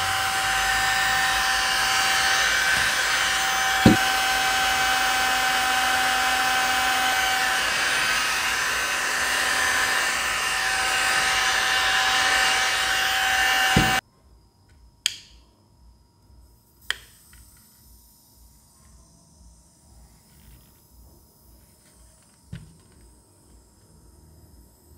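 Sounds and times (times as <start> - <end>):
handheld fan running: 0.0 - 14.0.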